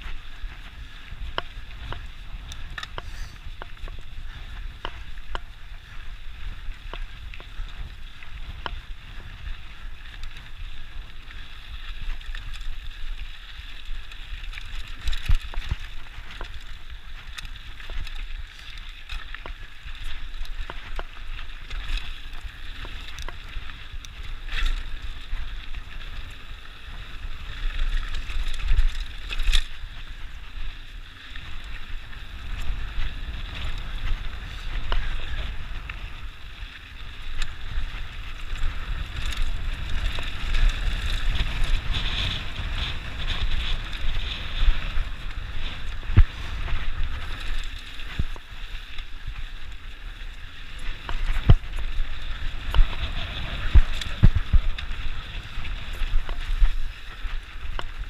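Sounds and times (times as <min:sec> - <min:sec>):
bike tyres on loose dirt: 0:00.0 - 0:58.0
bike rattling and knocking: 0:13.9 - 0:30.7, 0:50.7 - 0:58.0
wind buffeting microphone: 0:19.7 - 0:58.0.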